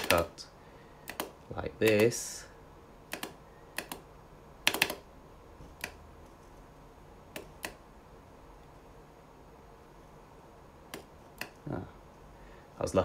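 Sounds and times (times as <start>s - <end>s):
computer mouse clicking: 0.0s - 0.3s, 1.0s - 2.2s, 3.1s - 6.0s, 7.3s - 7.8s, 10.9s - 11.6s.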